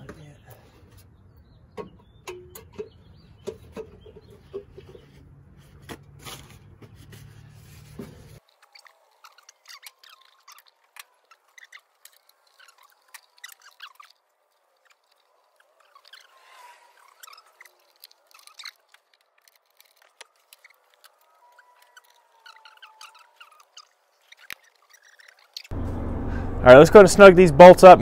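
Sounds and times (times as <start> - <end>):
metal bolts clicking and tapping: 1.8 - 4.7
low background hum: 25.0 - 28.0.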